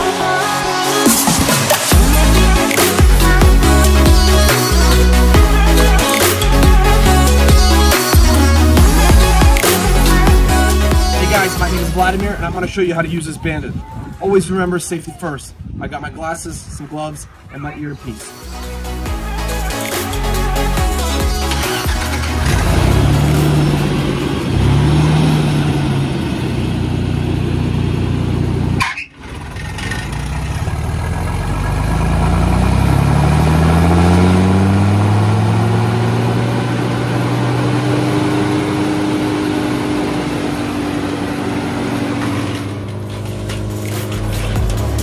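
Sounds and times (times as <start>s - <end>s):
wood chipper engine revving: 20.6s - 45.0s.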